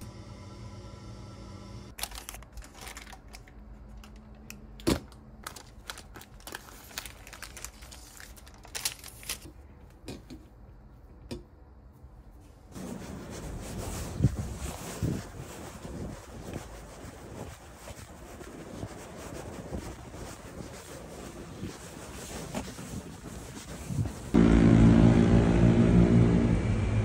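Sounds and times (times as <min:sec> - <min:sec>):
wind noise on microphone: 0:13.8 - 0:21.8.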